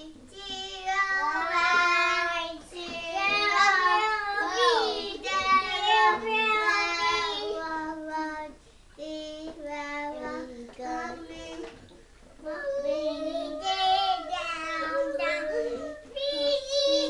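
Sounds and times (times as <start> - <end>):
toddler singing: 0.0 - 17.0.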